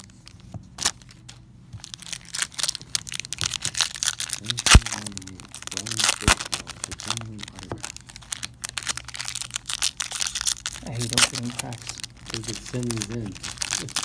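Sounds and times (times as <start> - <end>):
wrappers crinkling and tearing: 0.0 - 14.0
sharp cracks: 2.2 - 7.9.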